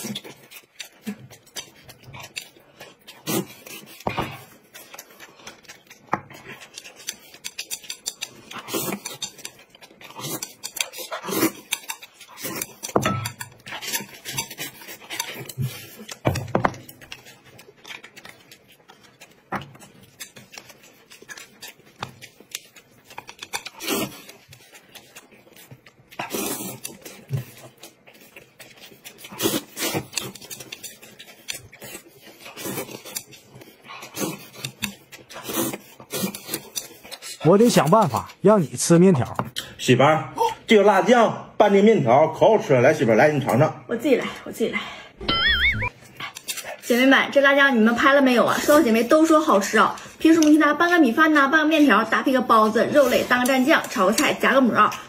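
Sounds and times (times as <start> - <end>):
chewing and mouth smacks: 0.0 - 38.4, 45.3 - 46.9.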